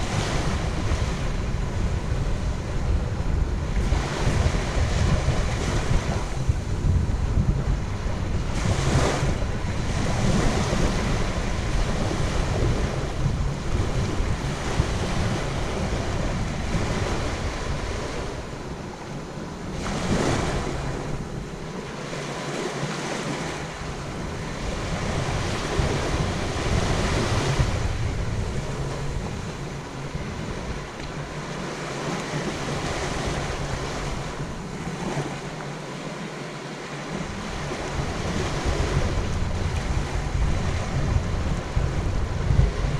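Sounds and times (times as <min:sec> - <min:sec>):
surf washing onto sandy beach: 0:00.0 - 0:42.9
wind buffeting microphone: 0:00.0 - 0:42.9.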